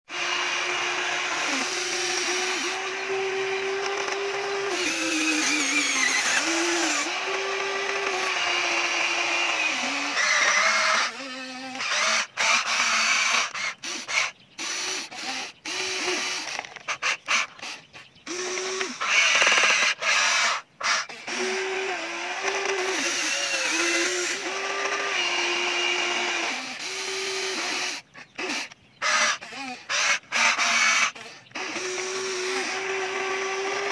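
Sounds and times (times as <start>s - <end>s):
toy excavator motors whining: 0.1s - 33.9s.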